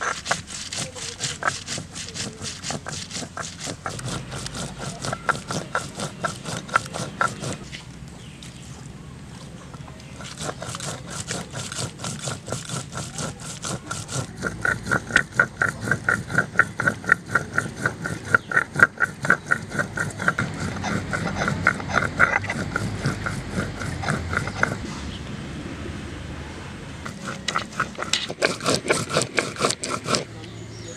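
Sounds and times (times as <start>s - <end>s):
stone roller scraping grinding stone: 0.0s - 24.9s, 27.0s - 30.9s.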